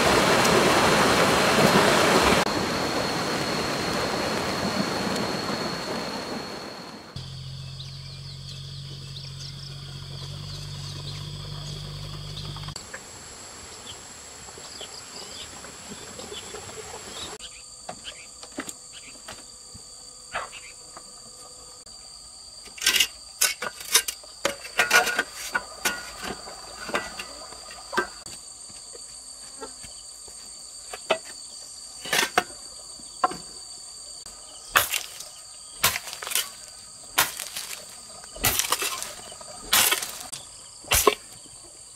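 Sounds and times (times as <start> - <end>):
insects chirring: 0.0 - 41.9
low hum: 0.5 - 14.5.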